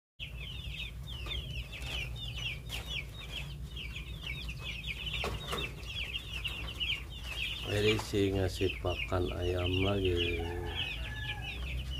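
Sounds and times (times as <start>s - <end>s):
chickens cheeping: 0.2s - 11.9s.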